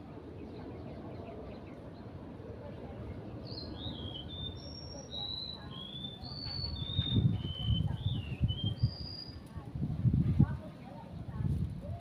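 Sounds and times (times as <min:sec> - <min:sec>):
bird singing high whistled notes: 0:03.4 - 0:09.4.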